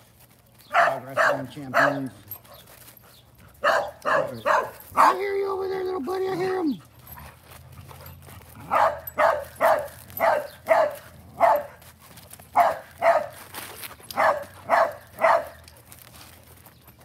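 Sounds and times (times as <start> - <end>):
dog barking: 0.7 - 2.1, 3.6 - 5.2, 8.6 - 11.8, 12.6 - 13.4, 14.2 - 15.6.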